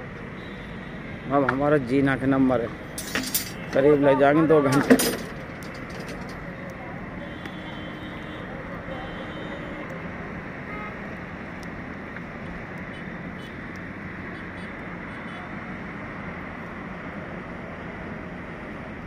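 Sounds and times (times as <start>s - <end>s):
construction machinery drone: 0.0s - 19.0s.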